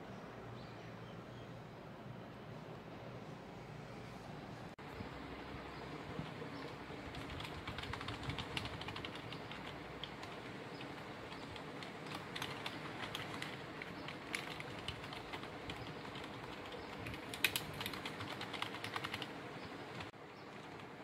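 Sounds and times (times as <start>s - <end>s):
steady background hiss: 0.0s - 21.0s
mechanical keyboard typing: 7.0s - 20.9s.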